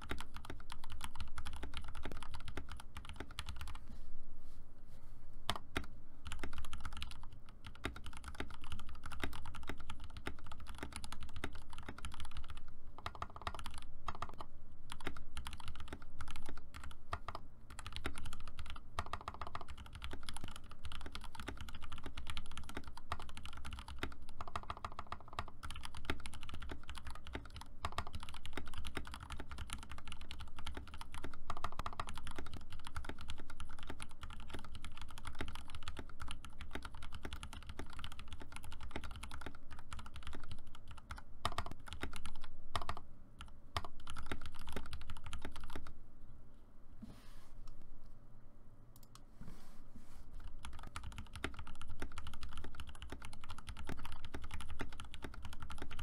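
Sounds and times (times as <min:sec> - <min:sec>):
fast mechanical keyboard typing: 0:00.0 - 0:03.8, 0:05.5 - 0:45.9, 0:50.4 - 0:56.0.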